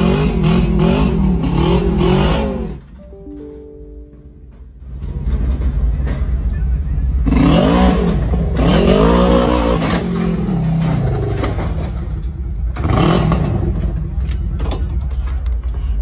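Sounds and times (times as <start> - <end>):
utility vehicle engine revving: 0.0 - 3.0, 5.0 - 14.4.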